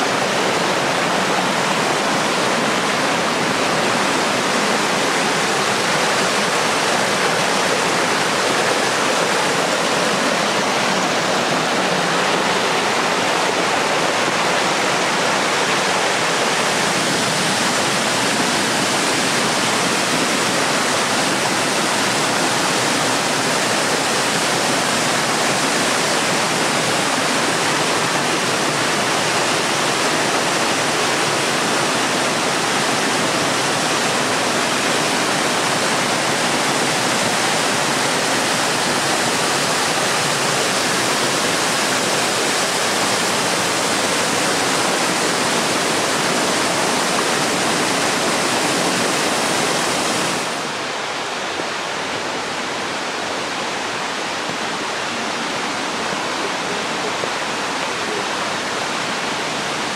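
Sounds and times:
stream water rushing: 0:00.0 - 0:59.9.

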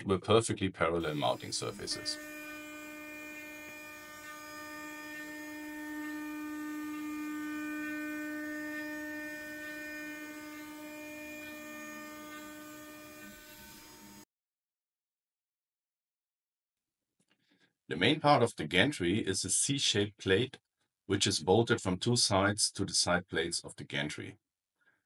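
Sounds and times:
milling machine whine: 0:01.0 - 0:14.2.

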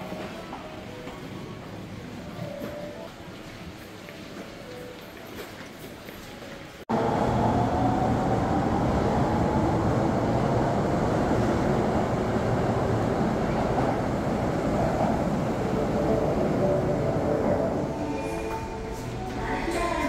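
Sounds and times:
subway train rumble: 0:00.0 - 0:05.0, 0:06.5 - 0:20.0
faint train whine: 0:06.9 - 0:20.0.

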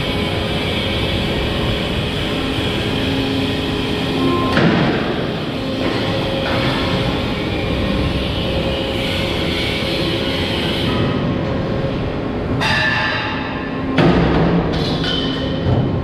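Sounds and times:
hydraulics whining: 0:00.0 - 0:12.5.

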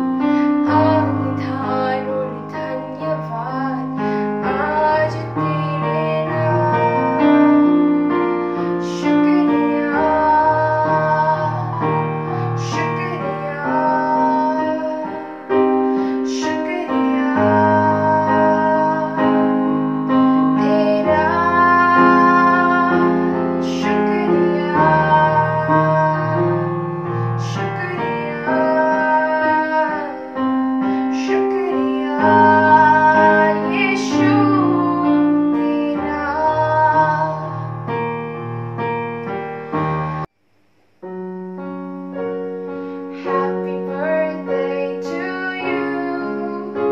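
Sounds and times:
electronic keyboard chords: 0:00.0 - 0:46.9
girl singing: 0:00.2 - 0:37.8, 0:43.1 - 0:46.9.

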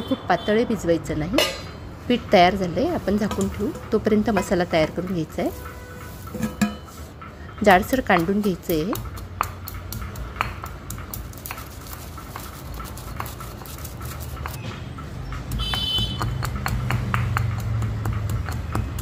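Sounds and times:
stone pestle pounding in mortar: 0:07.8 - 0:14.6, 0:15.4 - 0:19.0.

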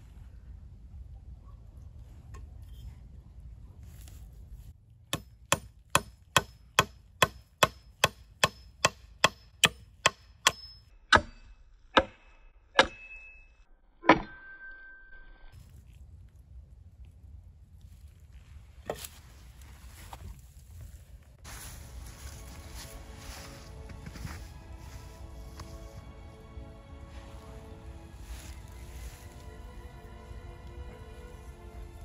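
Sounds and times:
hatchet knocking on wooden pole: 0:05.1 - 0:11.3.

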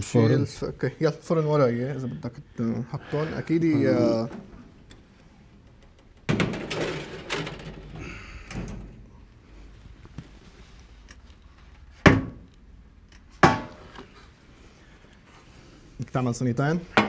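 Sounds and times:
oven door and baking tray clattering: 0:06.2 - 0:09.0.

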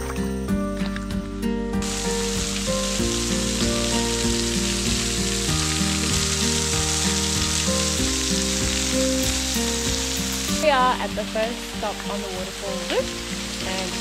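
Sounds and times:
background music of held notes: 0:00.0 - 0:14.0
waterfall splashing into pool: 0:01.8 - 0:10.6.

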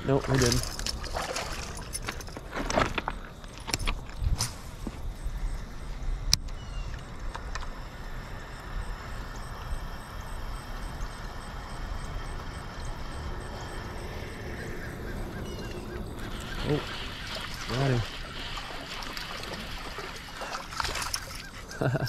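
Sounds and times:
low outdoor rumble: 0:05.3 - 0:18.8.

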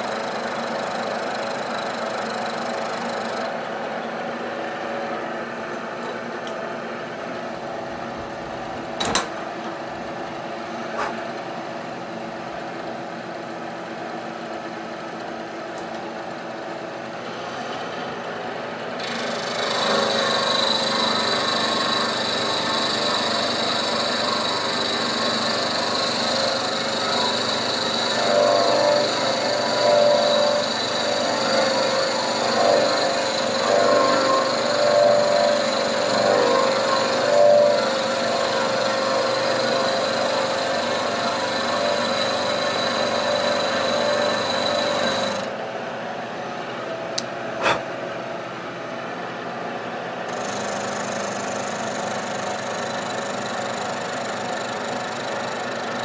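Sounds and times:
milling machine cutting metal: 0:19.0 - 0:45.6, 0:50.3 - 0:56.0.

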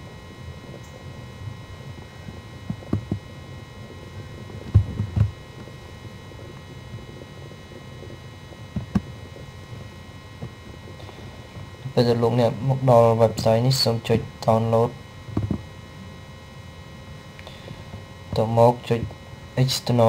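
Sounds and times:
electrical hum with whines: 0:00.0 - 0:20.0
laptop keys and trackpad thumps: 0:02.7 - 0:03.2, 0:04.7 - 0:05.4, 0:08.8 - 0:09.1, 0:15.4 - 0:15.6.

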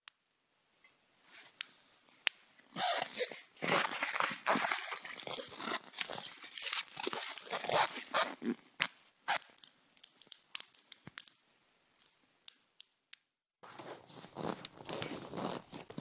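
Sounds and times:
campfire crackling and popping: 0:03.6 - 0:11.4, 0:12.0 - 0:13.0.

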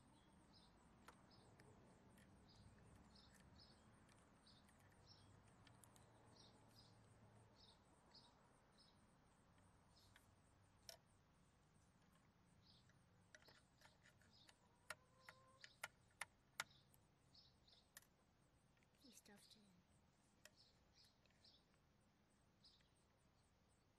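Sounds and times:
faint bird chirps: 0:00.0 - 0:10.8, 0:11.8 - 0:23.9
small sharp clicks and taps: 0:01.0 - 0:06.2, 0:12.8 - 0:16.8.

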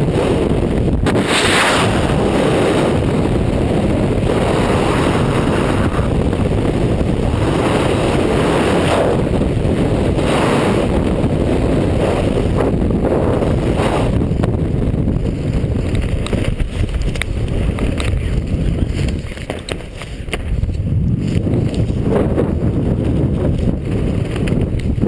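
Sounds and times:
freefall wind roar: 0:00.0 - 0:25.0
sharp flutter ticks: 0:15.8 - 0:20.8, 0:23.5 - 0:25.0.

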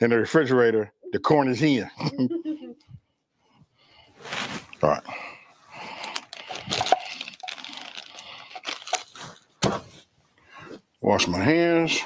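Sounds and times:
plastic bag crinkling: 0:05.8 - 0:09.5
sharp plastic crackle: 0:05.9 - 0:09.4.

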